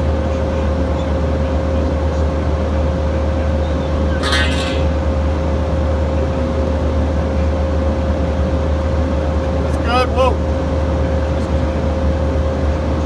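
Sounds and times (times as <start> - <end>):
high squeak: 4.1 - 5.0.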